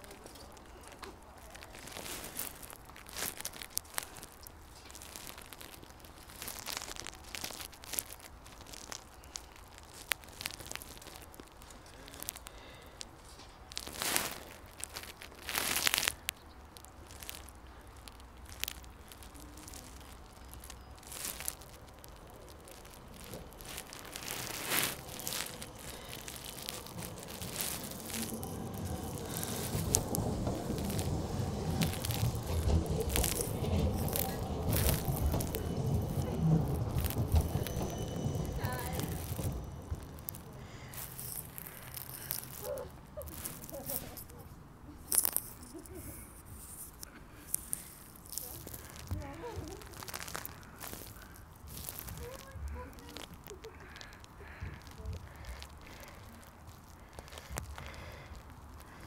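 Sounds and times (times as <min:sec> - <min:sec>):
small rattles: 0:00.0 - 0:59.0
microphone crackles and clicks: 0:13.8 - 0:59.0
tram rumbling on rails: 0:17.2 - 0:44.8.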